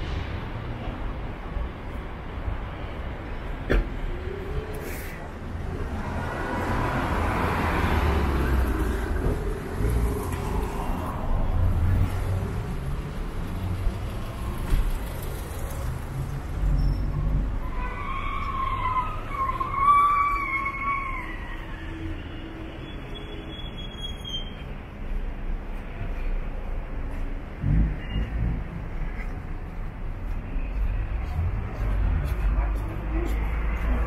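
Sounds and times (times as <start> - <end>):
cars driving past: 0.0 - 34.0
siren wailing: 17.7 - 22.4.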